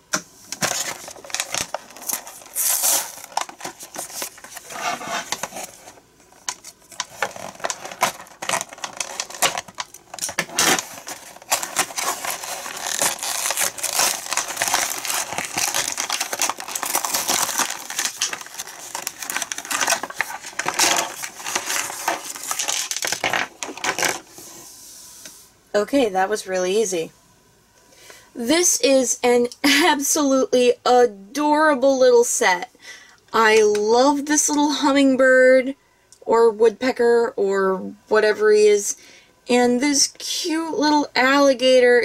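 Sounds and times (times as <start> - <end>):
blister pack crinkling and tearing: 0.5 - 24.2.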